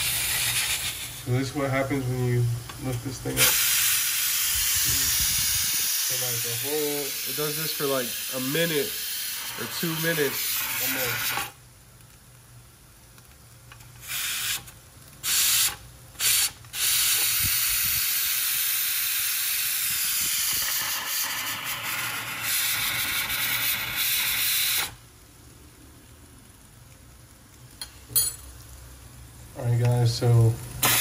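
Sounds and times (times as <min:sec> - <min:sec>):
pressure cooker steam hissing: 0:00.0 - 0:11.6, 0:13.9 - 0:25.0, 0:30.2 - 0:31.0.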